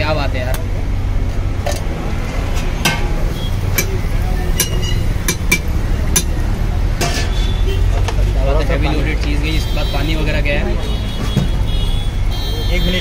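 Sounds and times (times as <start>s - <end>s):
metal utensils clinking on griddle: 2.5s - 6.4s.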